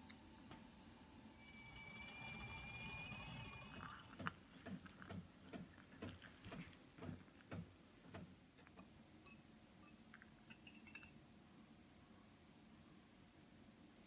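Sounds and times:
kettle whistling: 0.0 - 5.2
hot water pouring into a mug: 1.4 - 6.6.

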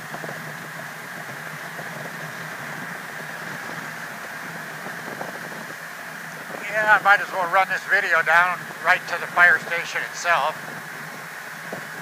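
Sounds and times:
motorcycle engine running steadily: 0.0 - 7.0
road noise: 0.0 - 12.0.

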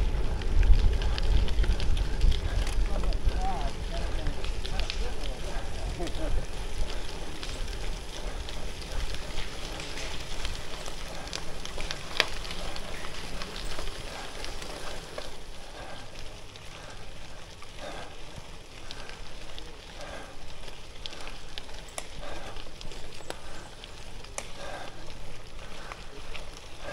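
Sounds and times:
wind rumble on microphone: 0.0 - 16.0
bike tyres crunching on gravel: 0.0 - 26.9.

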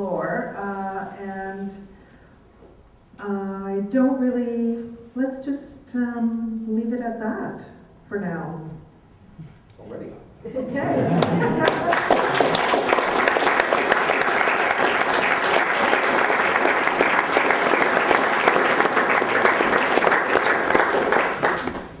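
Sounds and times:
audience applauding: 11.0 - 22.0.

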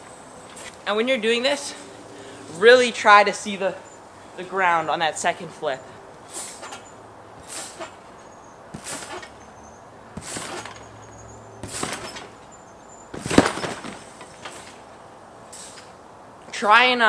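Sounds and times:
trampoline springs bouncing: 0.0 - 16.1.

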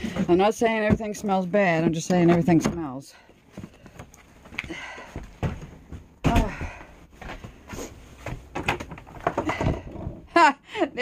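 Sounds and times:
footsteps indoors: 0.0 - 9.3
knocking handling noises: 0.0 - 10.3.

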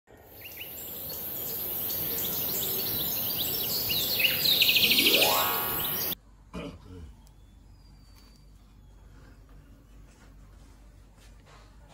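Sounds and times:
birds chirping: 0.1 - 6.2
high-pitched insect drone: 4.7 - 6.2
rising tone sweep: 4.8 - 6.2.

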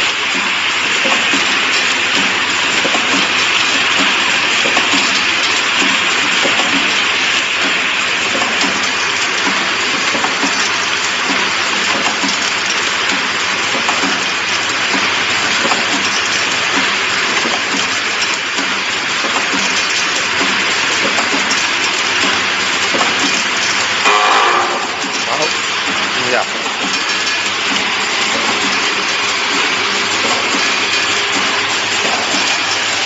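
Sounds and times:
cap assembly machine rattling: 0.1 - 24.0, 24.6 - 33.0.

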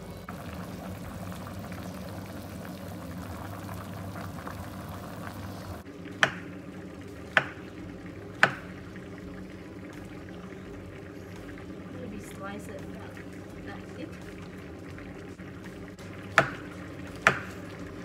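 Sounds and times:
stew simmering in a pan: 0.0 - 18.0
knife chopping on wooden board: 17.2 - 17.6.

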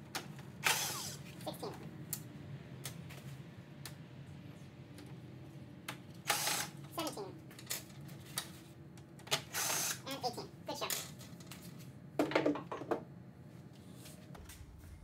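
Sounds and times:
power drill running: 0.6 - 1.3, 6.2 - 6.8, 9.4 - 10.0.

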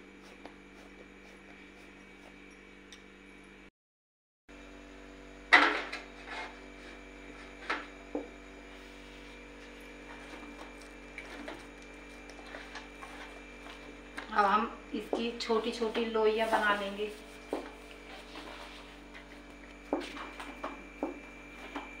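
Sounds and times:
electrical hum: 0.0 - 3.7, 4.5 - 22.0.

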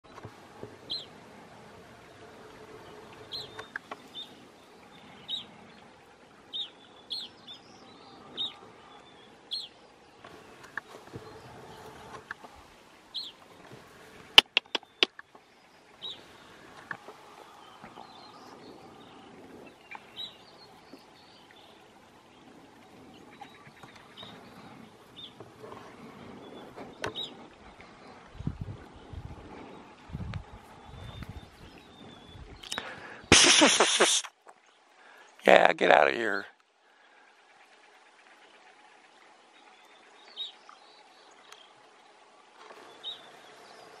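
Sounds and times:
sharp clicks: 14.4 - 15.2
small bird chirping: 14.4 - 15.2.

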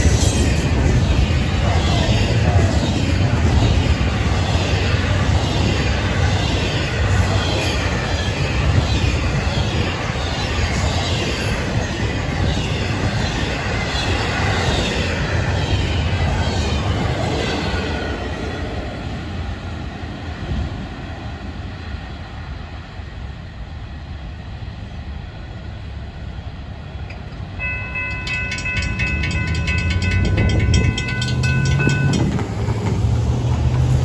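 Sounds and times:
freight train rumbling on rails: 0.0 - 34.0
level-crossing warning bell: 27.5 - 32.9.

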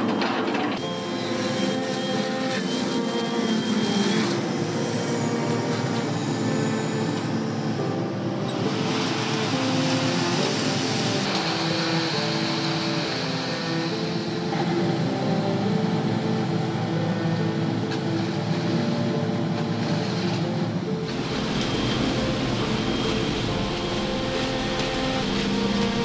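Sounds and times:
background music of held chords: 0.0 - 26.0
construction machinery running: 0.0 - 26.0.

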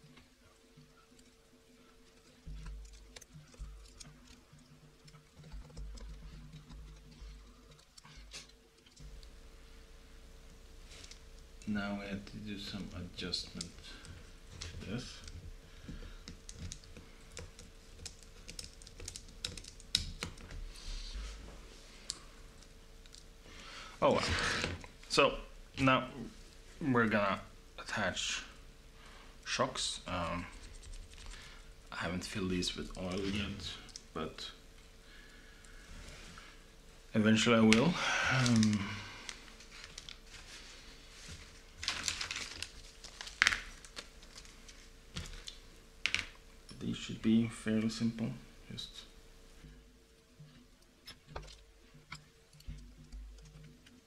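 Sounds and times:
small metal clicks and ticks: 2.0 - 9.3, 11.0 - 20.6, 22.1 - 23.3, 50.5 - 54.0
plastic bag crinkling: 37.5 - 46.4.

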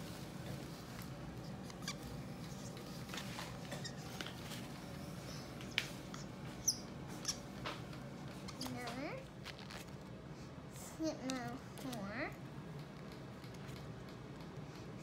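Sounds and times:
low room hum: 0.0 - 15.0
marker squeaking while writing: 1.4 - 4.4, 6.1 - 7.5, 8.3 - 9.9.

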